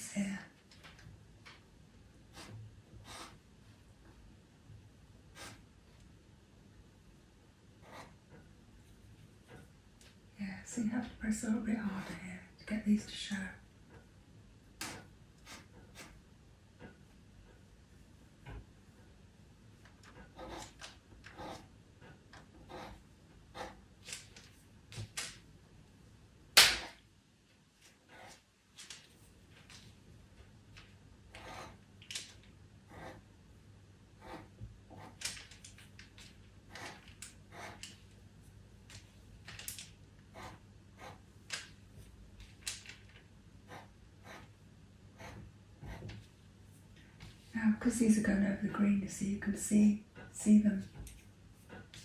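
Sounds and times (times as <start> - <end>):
pastel pencil scratching paper: 2.3 - 3.4, 5.4 - 5.6, 7.8 - 8.2, 14.8 - 16.2, 20.1 - 21.7, 22.4 - 23.8, 28.0 - 28.4, 31.3 - 31.8, 32.9 - 33.3, 34.2 - 35.4, 36.7 - 38.0, 40.3 - 41.3, 43.7 - 44.5, 45.2 - 46.2.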